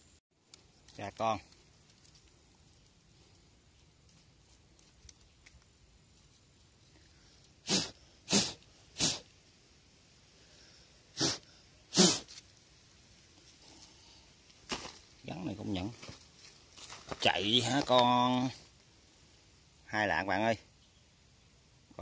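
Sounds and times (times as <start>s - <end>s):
snake hissing: 7.0s - 12.7s.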